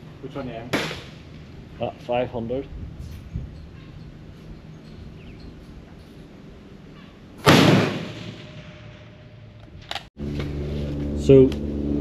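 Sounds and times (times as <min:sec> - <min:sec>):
rifle shot: 0:00.7 - 0:01.2, 0:07.4 - 0:09.3.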